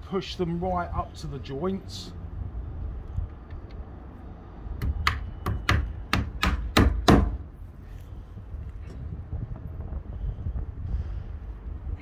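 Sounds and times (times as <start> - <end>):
hammer driving a nail into wood: 4.8 - 7.4.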